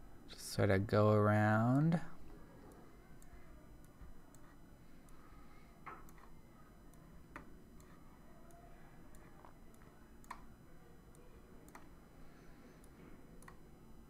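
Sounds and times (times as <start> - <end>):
computer mouse clicks: 2.7 - 5.2, 5.9 - 10.5, 11.1 - 12.0, 12.7 - 13.7.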